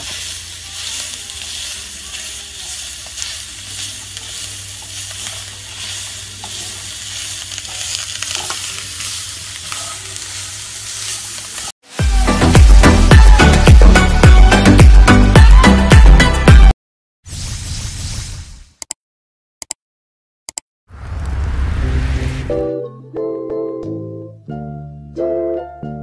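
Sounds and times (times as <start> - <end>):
spatula scraping a pan: 0.0 - 11.5
noodles sizzling in a wok: 0.0 - 15.6.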